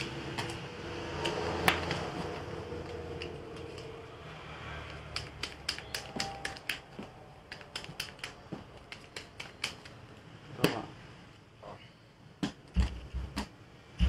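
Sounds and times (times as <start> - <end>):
domino cards clicking: 2.8 - 4.1, 4.8 - 10.1.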